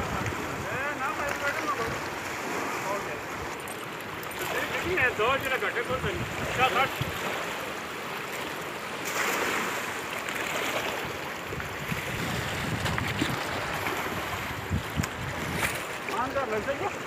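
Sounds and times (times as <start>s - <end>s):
wind buffeting microphone: 0.0s - 2.8s, 4.8s - 7.4s, 11.0s - 17.0s
river rushing: 0.0s - 17.0s.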